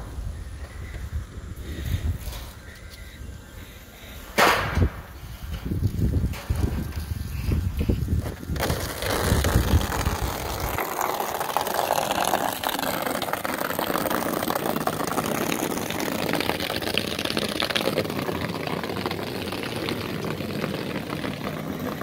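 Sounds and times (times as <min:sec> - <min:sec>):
hose water splashing into pool: 0:05.6 - 0:22.0.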